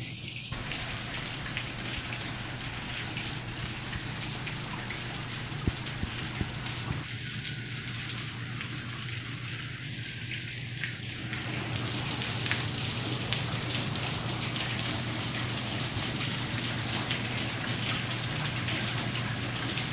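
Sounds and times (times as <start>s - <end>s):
water dripping: 0.5s - 9.0s
water pouring and splashing: 0.5s - 19.9s.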